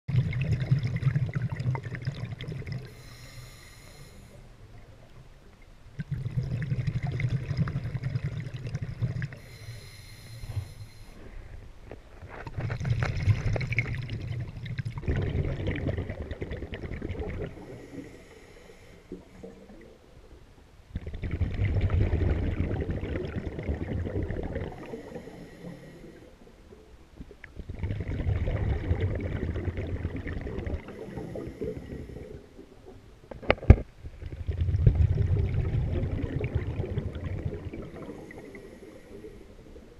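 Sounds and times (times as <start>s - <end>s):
gurgling underwater bubbles: 0.1s - 3.2s, 5.9s - 9.6s, 12.5s - 18.1s, 20.9s - 39.9s
regulator inhalation hiss: 2.9s - 4.4s, 9.4s - 11.2s.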